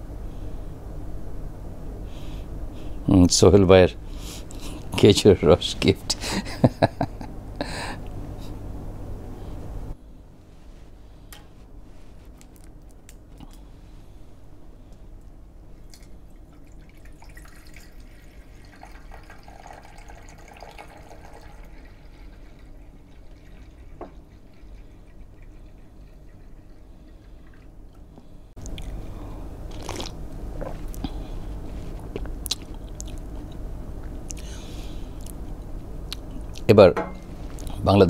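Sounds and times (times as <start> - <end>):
liquid trickling into a mug: 15.9 - 27.7
person sipping: 28.6 - 33.4.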